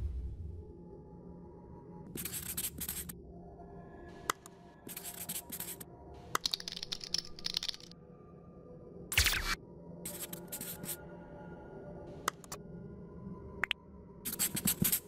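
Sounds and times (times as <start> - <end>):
faint background music: 0.0 - 15.0
marker scratching on whiteboard: 2.2 - 3.1, 4.9 - 5.8, 10.1 - 11.0, 14.3 - 15.0.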